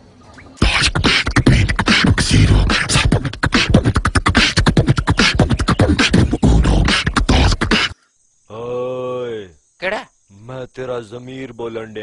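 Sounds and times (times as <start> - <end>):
person beatboxing: 0.6 - 8.0.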